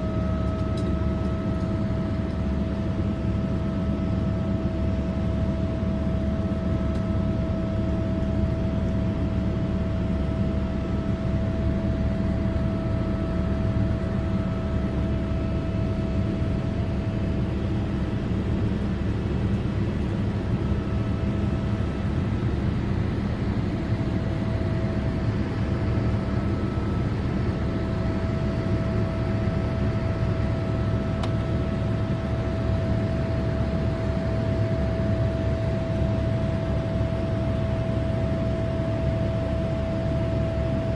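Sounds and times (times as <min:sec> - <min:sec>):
aircraft cabin engine drone: 0:00.0 - 0:40.9
constant engine whine: 0:00.0 - 0:40.9.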